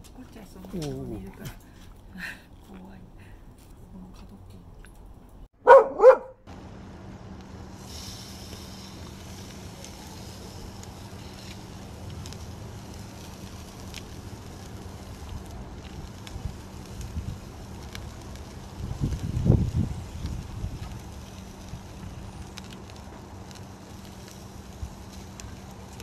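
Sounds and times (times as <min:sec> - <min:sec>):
dog barking: 0:05.6 - 0:06.4.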